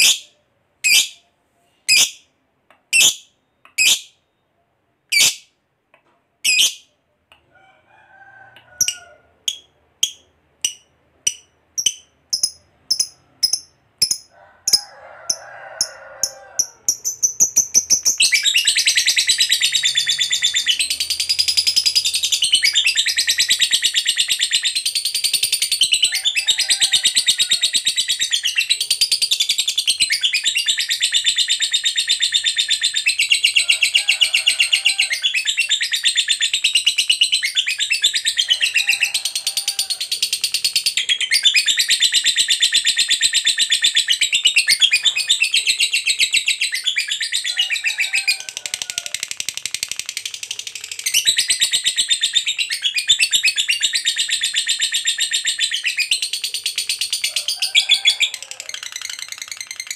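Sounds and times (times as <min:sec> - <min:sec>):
lovebird chattering trills: 0:01.9 - 0:02.2, 0:05.1 - 0:05.4, 0:08.8 - 0:26.4.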